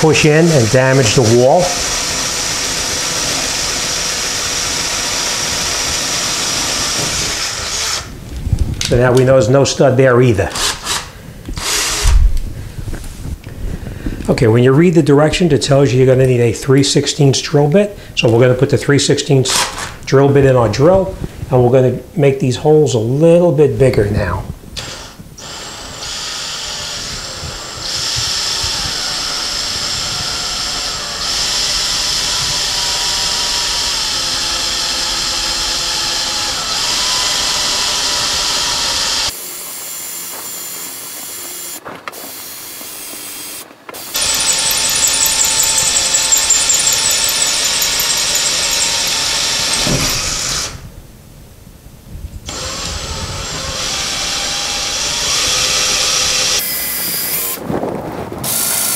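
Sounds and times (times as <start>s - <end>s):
cordless drill boring drywall: 0.0s - 8.2s, 10.5s - 12.3s, 19.5s - 20.0s, 24.8s - 50.8s, 52.4s - 57.6s, 58.4s - 58.9s.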